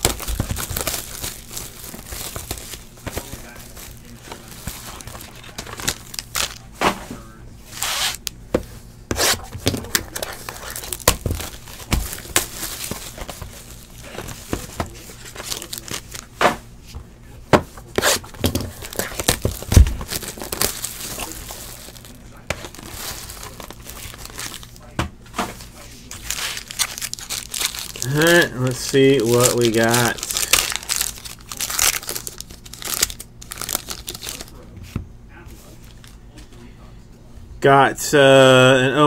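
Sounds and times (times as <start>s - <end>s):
plastic shrink wrap tearing: 0.0s - 6.7s, 7.7s - 8.4s, 9.2s - 16.3s, 17.8s - 24.9s, 26.0s - 34.6s.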